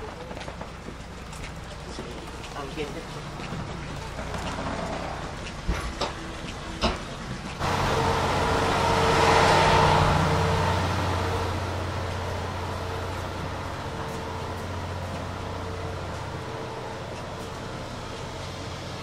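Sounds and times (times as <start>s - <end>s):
ship machinery drone: 0.0s - 19.0s
rushing air noise: 7.6s - 19.0s.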